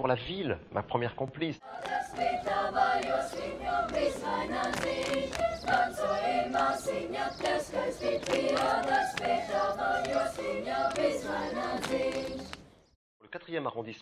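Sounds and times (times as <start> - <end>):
children's choir singing: 1.6 - 12.7.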